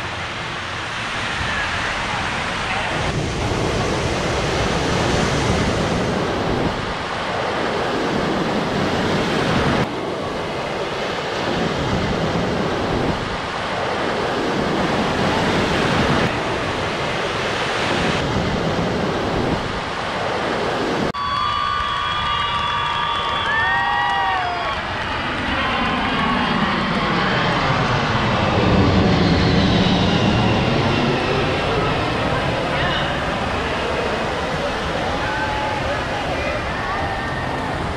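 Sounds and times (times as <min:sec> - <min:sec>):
wind on microphone: 0:00.0 - 0:21.4
ocean surf breaking: 0:00.0 - 0:26.3.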